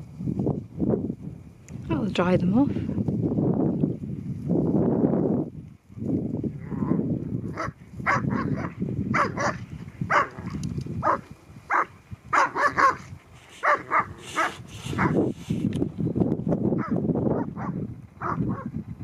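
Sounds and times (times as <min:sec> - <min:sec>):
dogs barking and yipping: 0:07.5 - 0:15.5, 0:16.8 - 0:18.8.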